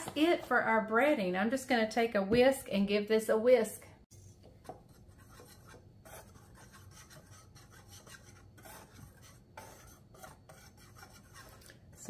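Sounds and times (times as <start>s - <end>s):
wire whisk scraping in glass bowl: 4.2s - 12.0s.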